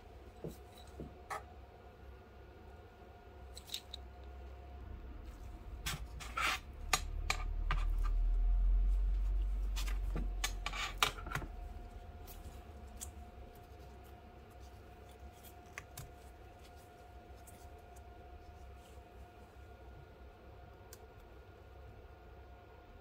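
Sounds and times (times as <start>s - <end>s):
plastic gloves rubbing: 11.8s - 19.4s.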